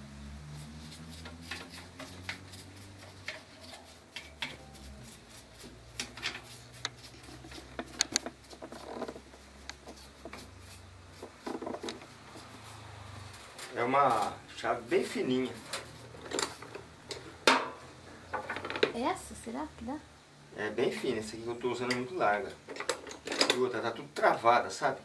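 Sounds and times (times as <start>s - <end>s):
screwdriver clicking and scraping metal: 1.1s - 10.5s.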